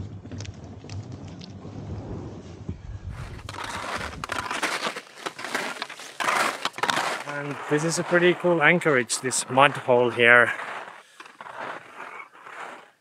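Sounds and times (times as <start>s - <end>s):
dinghy dragged across mud: 3.1s - 13.0s
skis crunching over crusty snow: 3.1s - 13.0s.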